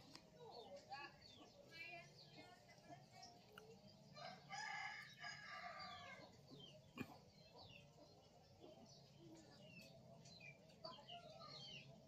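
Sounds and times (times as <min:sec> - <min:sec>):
small bird chirps: 0:00.0 - 0:12.0
rooster crowing: 0:04.2 - 0:06.2.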